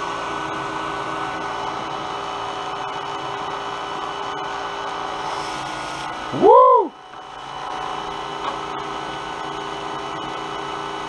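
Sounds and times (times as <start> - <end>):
cotton candy machine whirring: 0.0 - 11.0.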